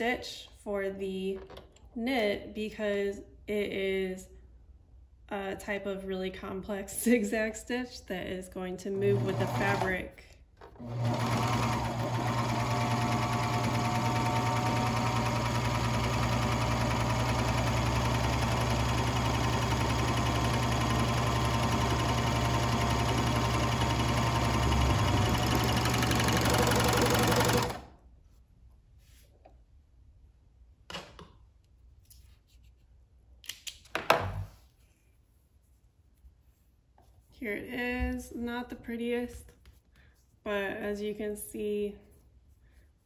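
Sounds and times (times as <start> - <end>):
serger sewing machine running: 9.0 - 9.9, 10.8 - 27.9.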